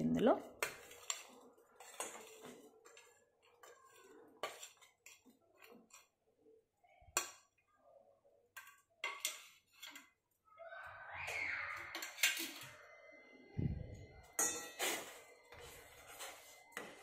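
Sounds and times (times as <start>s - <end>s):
steel spoon scraping a plate: 0.6s - 6.2s, 8.6s - 10.2s, 11.8s - 12.8s, 14.3s - 16.6s.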